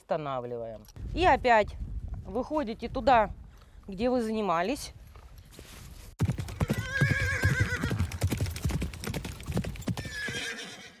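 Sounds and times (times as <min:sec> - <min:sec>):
horse hooves clopping: 0:05.1 - 0:10.8
horse whinnying: 0:06.5 - 0:08.2, 0:10.0 - 0:11.0.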